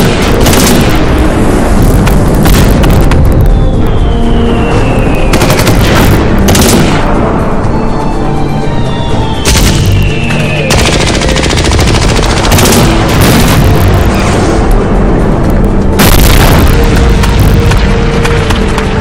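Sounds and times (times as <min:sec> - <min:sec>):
background music: 0:00.0 - 0:19.0
automatic gunfire bursts: 0:10.7 - 0:13.4.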